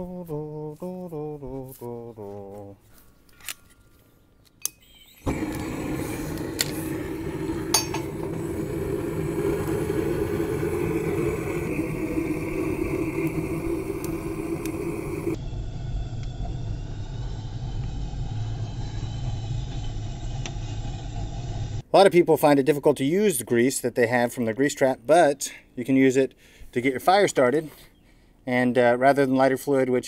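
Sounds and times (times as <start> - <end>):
propane torch roaring: 5.2 - 21.8.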